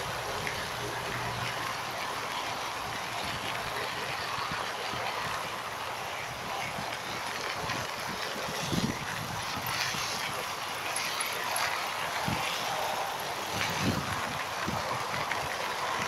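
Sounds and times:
wind rushing on microphone: 0.0s - 16.0s.

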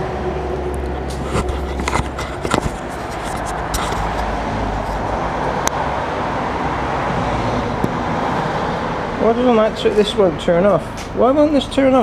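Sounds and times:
vehicle engine rumble: 0.0s - 12.0s
sharp knocks and clicks: 1.3s - 4.3s.

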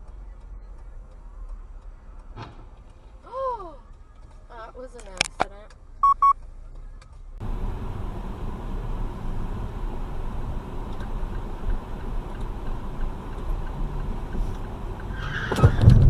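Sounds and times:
car road and engine noise: 0.0s - 16.0s.

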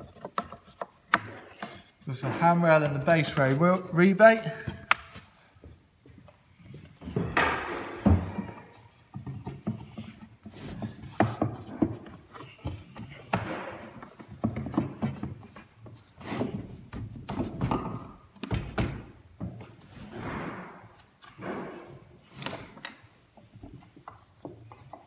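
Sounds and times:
wood scraping: 0.0s - 5.4s, 6.1s - 18.3s
wooden knocks: 7.0s - 15.7s.

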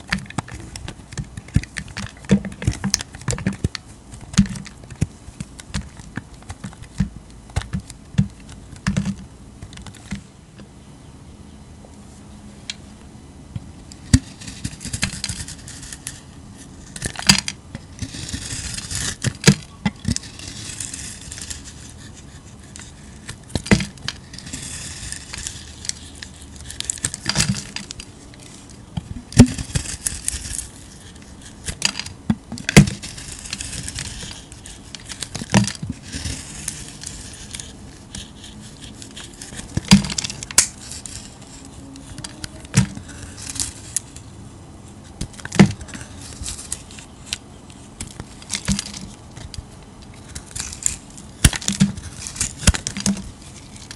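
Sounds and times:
knife blade scraping soap: 18.0s - 28.7s.

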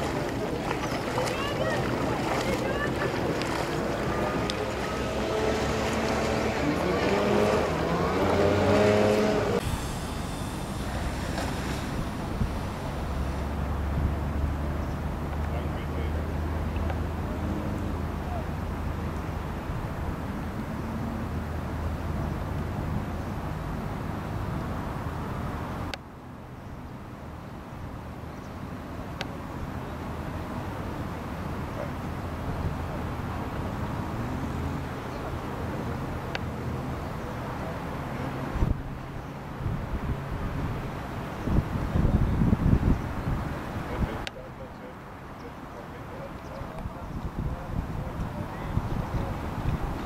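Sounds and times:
low outdoor rumble: 0.0s - 24.0s
engine droning: 0.0s - 24.9s
wind noise on microphone: 8.3s - 15.3s, 38.4s - 44.2s, 46.6s - 50.0s.

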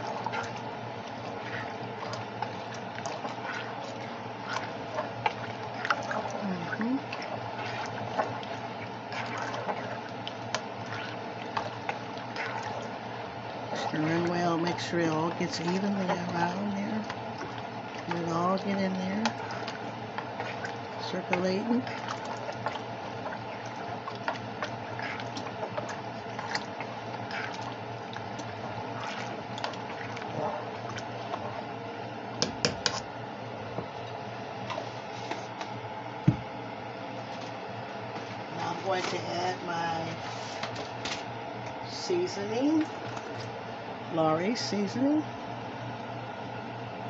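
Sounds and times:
liquid sloshing in saucepan: 0.0s - 35.6s, 42.8s - 43.7s
steady low hum: 0.0s - 47.0s.

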